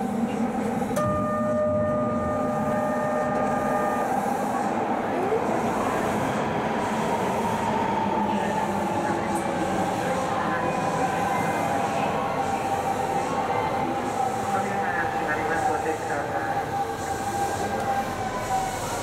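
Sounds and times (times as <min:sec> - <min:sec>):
train rumbling in tunnel: 0:00.0 - 0:19.0
electronic beep tone: 0:01.0 - 0:04.0
faint wavering whine: 0:01.0 - 0:04.5.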